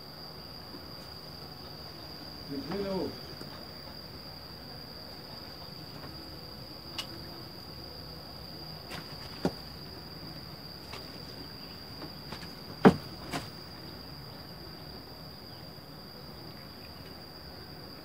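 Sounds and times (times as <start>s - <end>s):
insects droning: 0.0s - 18.0s
short sharp knocks: 12.3s - 13.5s.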